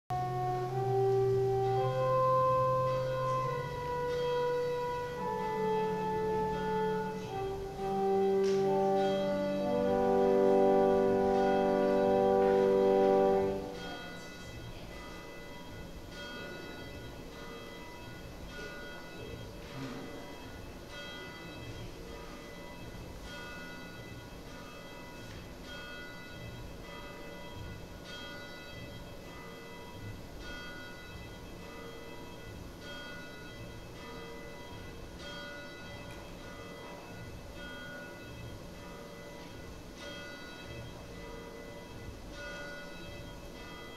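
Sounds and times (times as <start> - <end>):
church organ chord: 0.1 - 23.0
bells ringing softly: 0.1 - 43.9.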